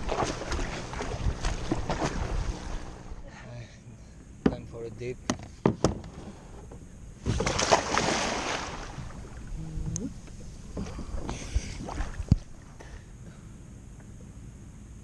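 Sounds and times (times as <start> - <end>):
water washing: 0.0 - 3.1
swimming splashes: 0.0 - 3.2, 7.2 - 9.5, 10.8 - 12.7
big splash into water: 7.2 - 9.4.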